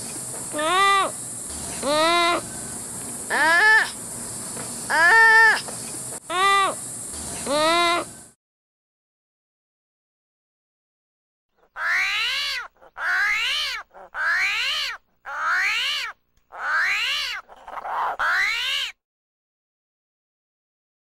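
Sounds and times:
armadillo squealing calls: 0:00.0 - 0:08.2, 0:11.6 - 0:19.0.

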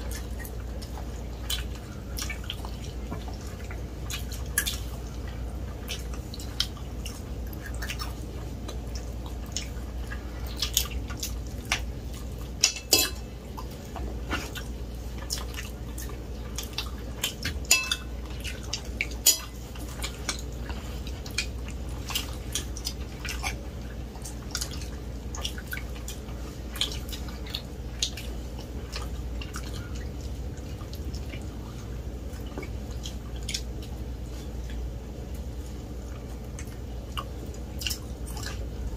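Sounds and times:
chewing and mouth sounds: 0:00.0 - 0:38.9
steady low hum: 0:00.0 - 0:38.9
forks clicking on plates: 0:12.6 - 0:13.3, 0:17.4 - 0:18.1, 0:19.2 - 0:20.4.

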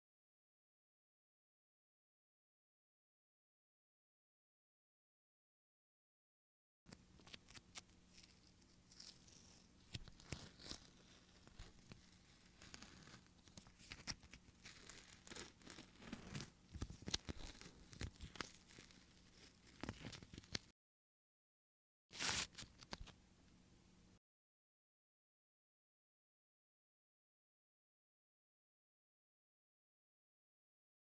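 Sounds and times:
peel-off mask crackling off skin: 0:07.2 - 0:20.7.

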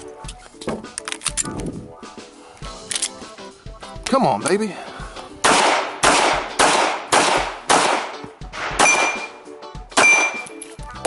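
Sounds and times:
pistol shots: 0:05.4 - 0:09.4, 0:10.0 - 0:10.5.

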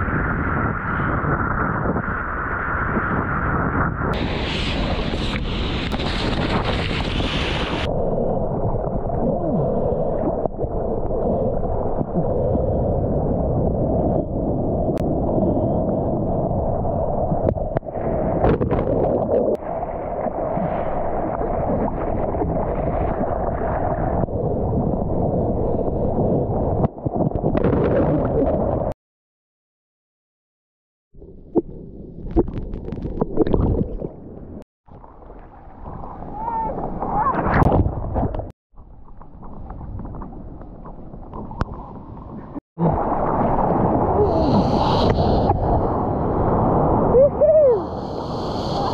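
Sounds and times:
wind buffeting camera: 0:00.0 - 0:28.9, 0:31.2 - 0:47.7
surf and rushing water: 0:04.1 - 0:28.9, 0:33.4 - 0:38.5, 0:41.3 - 0:48.9.

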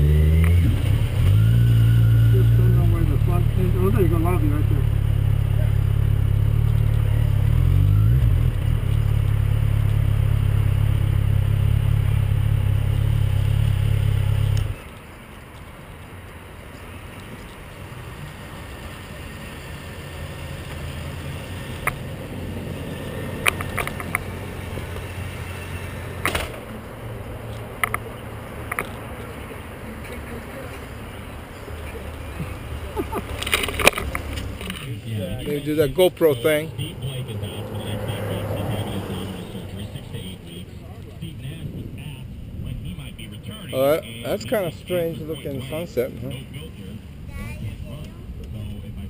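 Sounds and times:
motorcycle engine running: 0:00.0 - 0:14.8
outdoor background: 0:00.0 - 0:49.0
sharp clicks and knocks: 0:23.4 - 0:24.3, 0:27.5 - 0:28.0, 0:28.6 - 0:29.0, 0:33.2 - 0:34.9.

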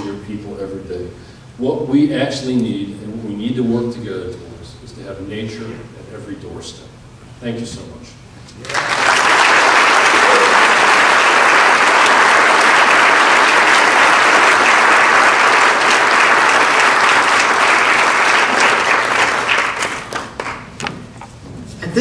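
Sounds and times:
audience applauding: 0:08.6 - 0:20.9.

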